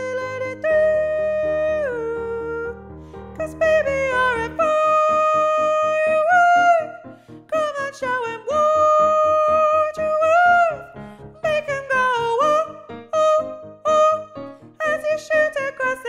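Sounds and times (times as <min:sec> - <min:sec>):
rhythmic chordal accompaniment: 0:00.0 - 0:16.0.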